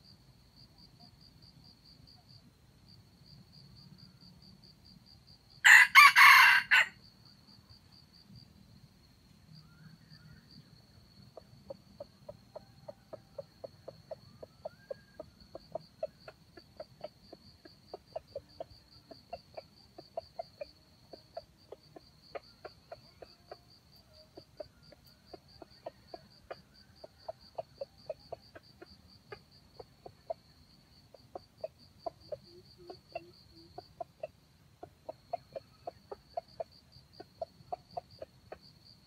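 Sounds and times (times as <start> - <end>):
chicken clucking: 11.4 - 39.0.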